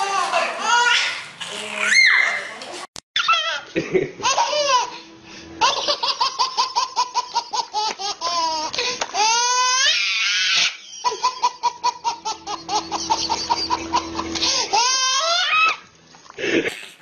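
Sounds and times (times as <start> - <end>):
baby squealing: 0.7 - 2.5, 3.2 - 3.6, 9.2 - 11.3, 14.4 - 15.8
baby laughing: 3.2 - 15.8.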